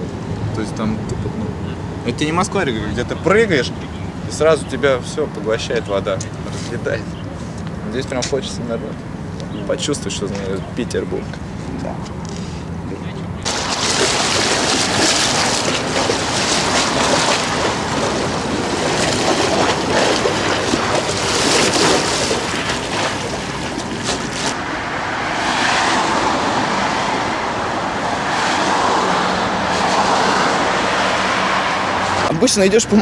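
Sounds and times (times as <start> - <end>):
river waves splashing on stone steps: 12.9 - 24.8.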